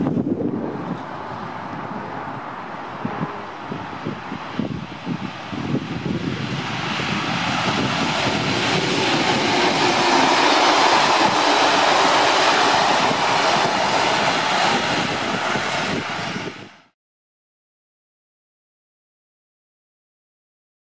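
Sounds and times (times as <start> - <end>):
diesel locomotive engine passing: 0.1 - 17.0
train wheels on rails: 3.5 - 16.9.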